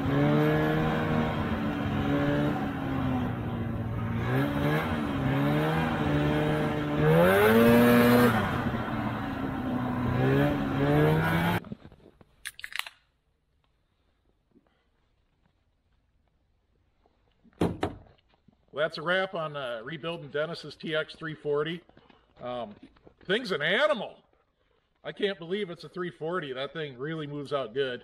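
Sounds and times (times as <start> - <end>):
snowmobile engine revving: 0.0 - 11.6
drink can opening: 12.4 - 13.0.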